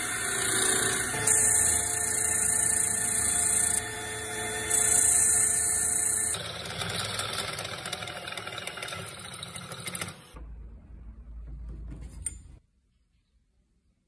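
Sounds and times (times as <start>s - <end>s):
drill press cutting metal: 0.0s - 10.3s.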